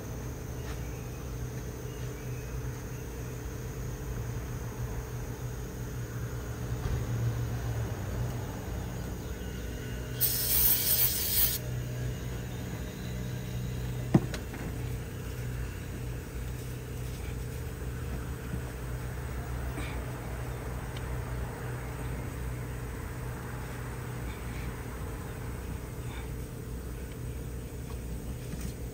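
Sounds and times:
steady low hum: 0:00.0 - 0:28.9
aerosol spray hiss: 0:10.2 - 0:11.6.

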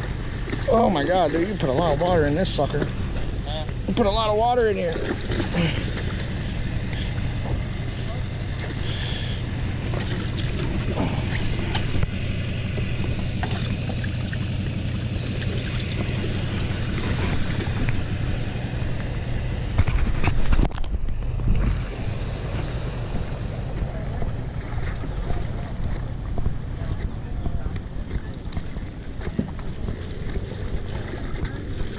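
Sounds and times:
steady low rumble: 0:00.0 - 0:31.9
faint voices: 0:00.6 - 0:09.9, 0:23.2 - 0:31.9.

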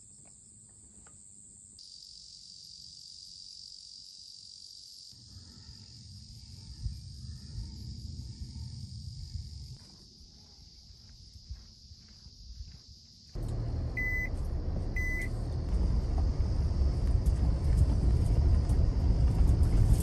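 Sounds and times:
crickets chirring: 0:00.0 - 0:20.0
low rumble: 0:13.4 - 0:20.0.

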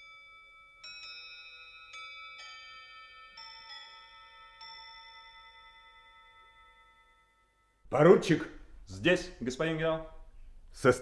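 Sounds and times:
bell-like chime notes: 0:00.0 - 0:07.9.

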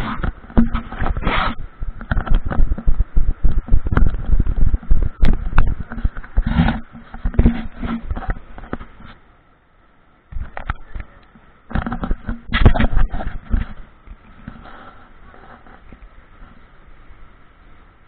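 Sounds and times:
short rushes of noise: 0:00.0 - 0:09.2
camera handling knocks and rubbing: 0:00.2 - 0:01.3, 0:02.0 - 0:03.0, 0:03.6 - 0:09.2, 0:11.7 - 0:13.8.

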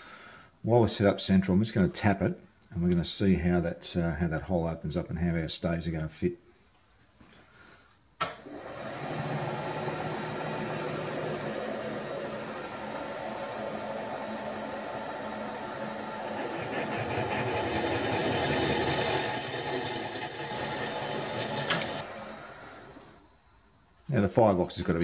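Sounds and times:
drill cutting into steel: 0:08.2 - 0:22.9
machine spindle running: 0:08.4 - 0:22.8
high drill squeal: 0:14.9 - 0:22.0.

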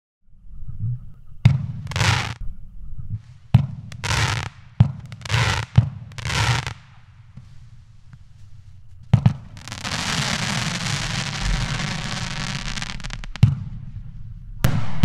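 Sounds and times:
firework hiss: 0:01.8 - 0:02.4, 0:03.2 - 0:15.0
firework launch thumps: 0:09.1 - 0:15.0
low rumble: 0:10.3 - 0:15.0.

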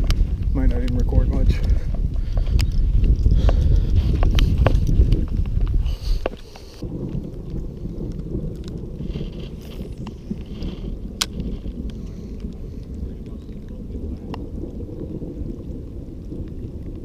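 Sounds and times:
wind buffeting microphone: 0:00.0 - 0:17.0
rustling: 0:01.7 - 0:13.6.

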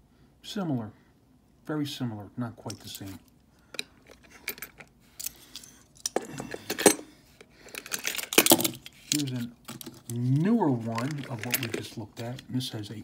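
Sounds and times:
metal toy vehicles clattering: 0:07.7 - 0:10.2, 0:10.8 - 0:12.4.

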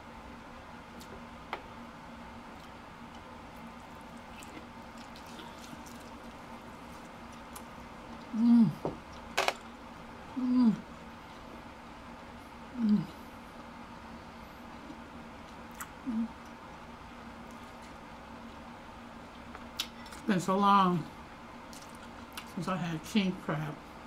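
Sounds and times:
low falling hums: 0:00.0 - 0:19.4
wet chewing: 0:02.6 - 0:08.3.

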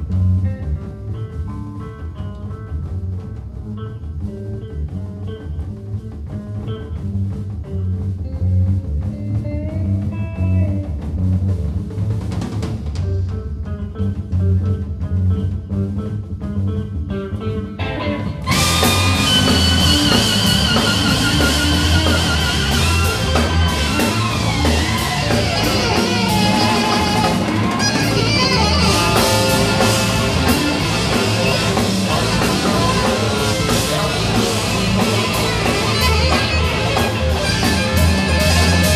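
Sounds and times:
bass guitar: 0:00.0 - 0:38.9
drum kit: 0:00.0 - 0:38.9
electric guitar with electronics: 0:00.0 - 0:38.9.

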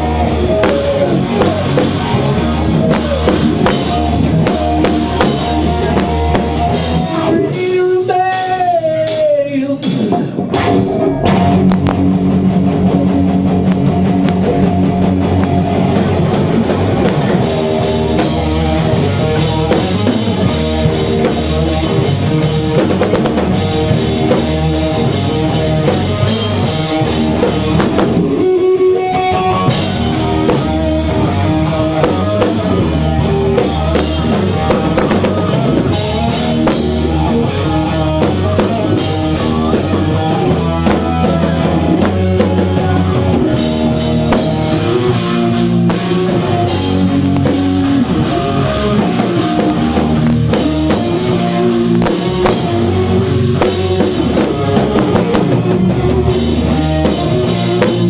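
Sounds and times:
heavy metal band playing: 0:00.0 - 0:58.0.

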